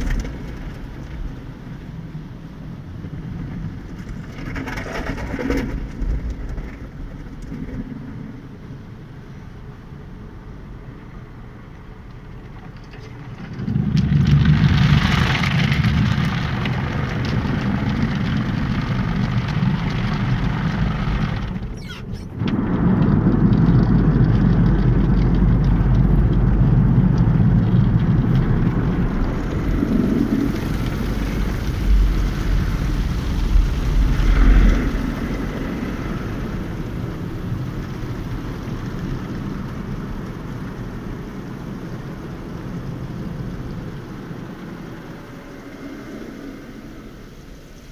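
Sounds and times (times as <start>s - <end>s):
water spray on car: 11.8s - 47.9s.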